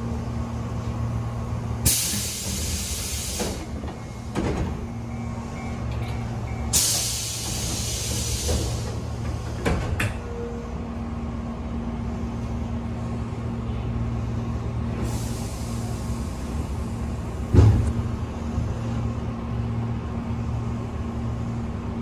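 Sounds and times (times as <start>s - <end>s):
stationary train hum: 0.0s - 22.0s
air hiss of train doors: 1.8s - 4.8s, 6.0s - 10.2s, 14.9s - 18.0s.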